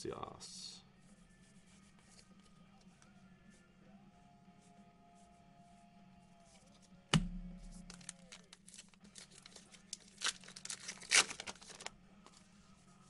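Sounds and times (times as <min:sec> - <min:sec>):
card pack wrappers crinkling and tearing: 0:07.6 - 0:12.0.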